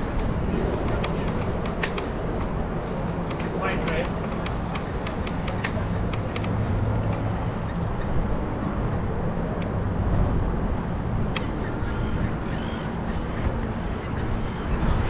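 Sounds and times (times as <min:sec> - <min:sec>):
bicycle clicks: 0:00.0 - 0:08.4, 0:09.5 - 0:09.8
wind rumble over camera: 0:00.0 - 0:15.0.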